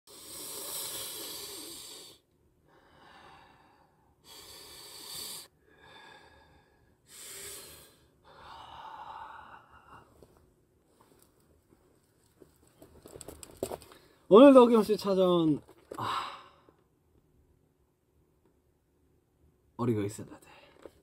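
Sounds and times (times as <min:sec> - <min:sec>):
person breathing out heavily: 0:00.1 - 0:10.2, 0:15.9 - 0:16.7.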